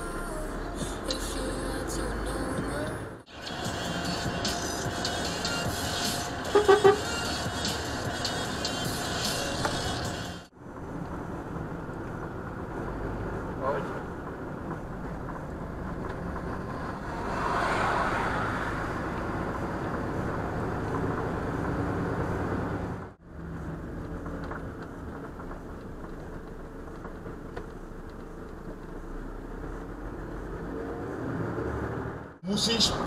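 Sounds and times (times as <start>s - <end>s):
truck engine and road noise: 0.0s - 33.0s.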